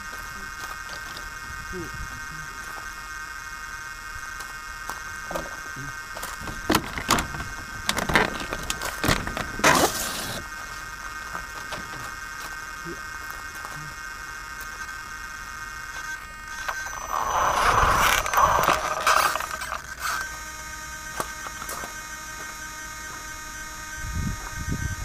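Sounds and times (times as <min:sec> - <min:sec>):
scraping and motor noise: 0:00.0 - 0:01.7, 0:02.4 - 0:25.0
steady high whine: 0:00.0 - 0:25.0
rover driving over gravel: 0:04.3 - 0:13.8, 0:16.5 - 0:20.4.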